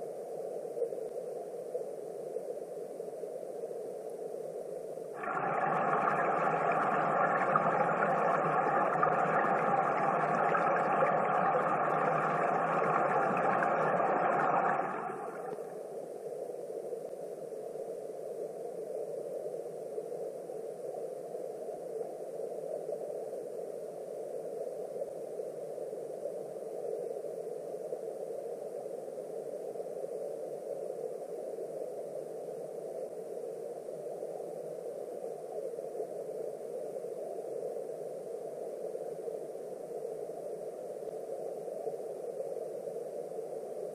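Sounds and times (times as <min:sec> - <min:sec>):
muffled underwater river rush: 0:05.2 - 0:16.0.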